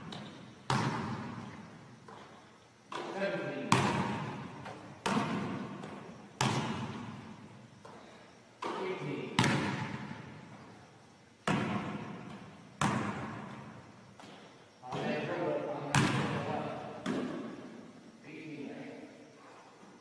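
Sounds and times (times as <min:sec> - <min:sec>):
basketball thuds with gym echo: 0:00.0 - 0:02.3, 0:02.9 - 0:10.5, 0:11.4 - 0:15.1, 0:15.9 - 0:17.8.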